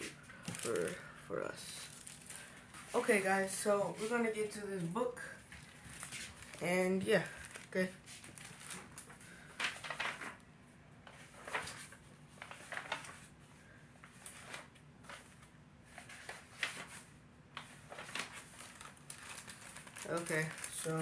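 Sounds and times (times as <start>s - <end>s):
book pages rustling: 0.0s - 1.1s, 5.4s - 10.4s, 11.0s - 13.4s, 14.0s - 21.0s.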